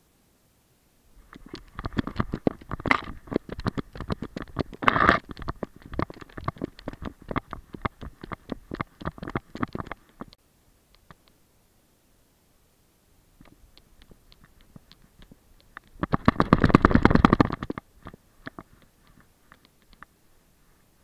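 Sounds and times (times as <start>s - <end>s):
camera harness knocks and thuds: 16.0s - 18.6s.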